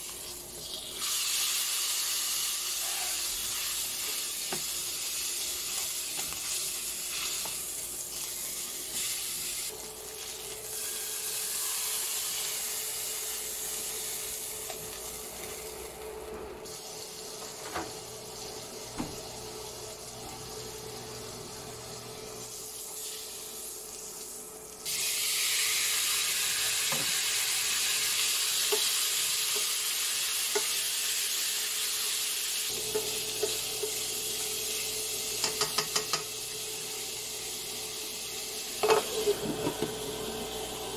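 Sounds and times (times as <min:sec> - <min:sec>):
fat sizzling in a pan: 0:00.0 - 0:16.0, 0:16.6 - 0:40.9
tongs clicking against pan: 0:35.4 - 0:36.3.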